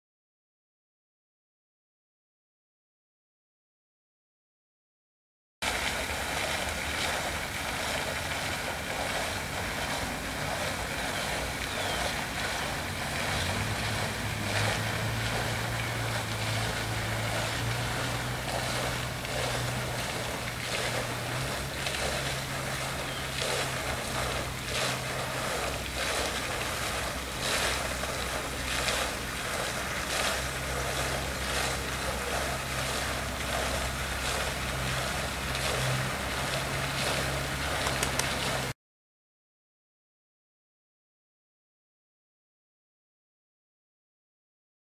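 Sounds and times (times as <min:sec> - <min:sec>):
model ship motor hum: 0:05.7 - 0:38.7.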